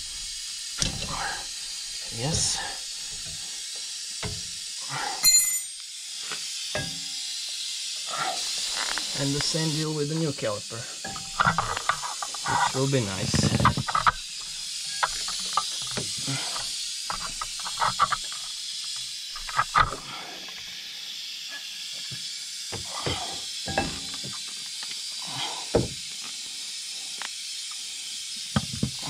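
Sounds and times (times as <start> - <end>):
steady high hiss: 0.0 - 29.0.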